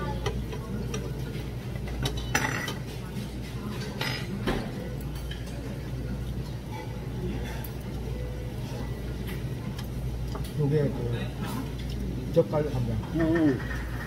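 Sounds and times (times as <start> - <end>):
utensils clinking against dishes: 0.0 - 5.7, 13.0 - 14.0
steady low hum: 0.0 - 14.0.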